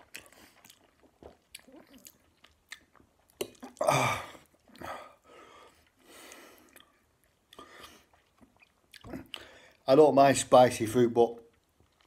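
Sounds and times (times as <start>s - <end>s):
man breathing hard: 3.8s - 6.7s.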